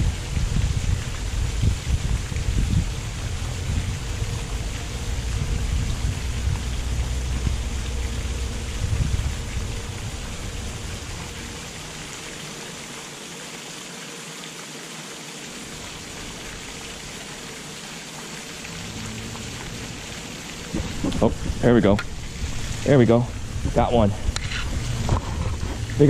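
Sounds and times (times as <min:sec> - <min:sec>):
wind buffeting microphone: 0:00.0 - 0:12.2, 0:18.8 - 0:26.0
wind hissing: 0:00.0 - 0:13.4, 0:15.5 - 0:26.0.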